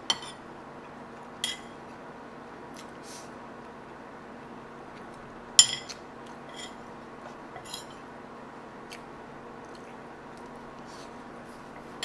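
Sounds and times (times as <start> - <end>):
metal spoon clinking on plate: 5.6 - 6.8, 7.6 - 8.0.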